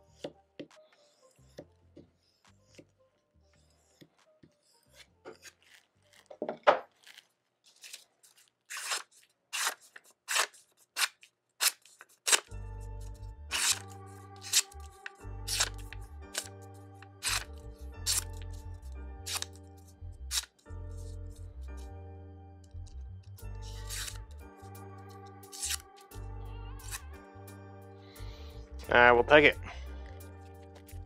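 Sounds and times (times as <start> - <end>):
knife slicing paper: 4.9 - 6.3, 6.9 - 12.6, 13.5 - 16.6, 17.2 - 19.6, 20.3 - 21.2, 23.6 - 24.3, 25.5 - 26.0.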